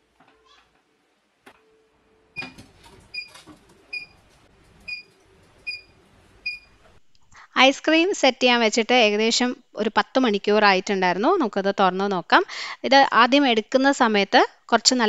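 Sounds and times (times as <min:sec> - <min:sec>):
refrigerator door alarm beeps: 0:02.4 - 0:04.2, 0:04.9 - 0:06.8.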